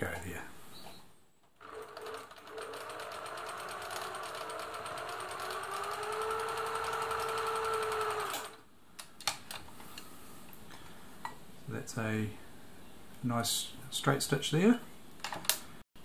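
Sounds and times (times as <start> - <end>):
sewing machine running: 1.6 - 8.6.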